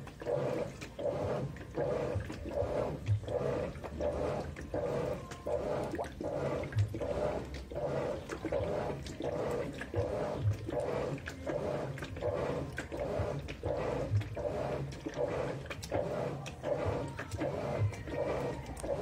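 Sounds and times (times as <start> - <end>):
washing machine motor humming: 0.0 - 19.0
water sloshing: 0.0 - 19.0.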